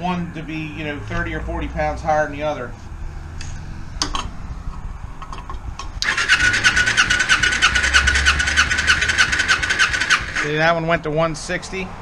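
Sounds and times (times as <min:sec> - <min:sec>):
engine starter whine: 0:06.0 - 0:10.7.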